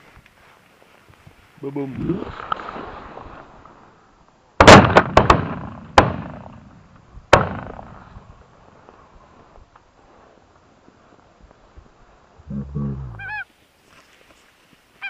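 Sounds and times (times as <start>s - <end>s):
shotgun shots: 4.6s - 6.6s, 7.3s - 8.0s.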